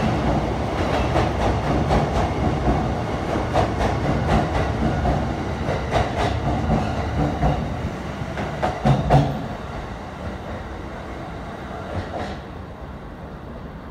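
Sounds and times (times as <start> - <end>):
train running rumble: 0.0 - 10.9
train wheels clacking over rail joints: 0.2 - 7.8, 8.4 - 9.5.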